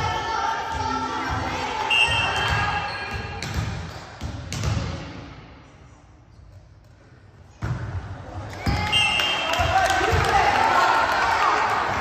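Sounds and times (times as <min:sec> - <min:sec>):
crowd cheering and chatter: 0:08.0 - 0:12.0.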